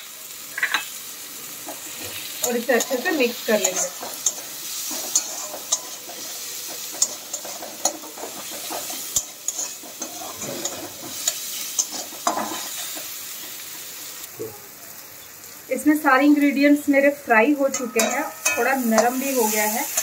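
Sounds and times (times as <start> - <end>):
onion and tomato sizzling in oil: 0.0 - 20.0
metal spatula scraping a pan: 1.7 - 13.6, 17.7 - 20.0.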